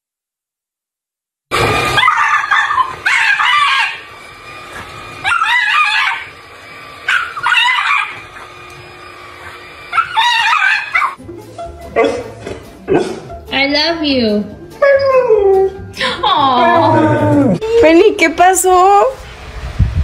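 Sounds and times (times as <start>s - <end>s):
stick vacuum running: 1.5s - 11.2s
dog barking: 2.0s - 4.0s, 7.1s - 8.5s, 9.9s - 11.2s, 12.0s - 13.2s.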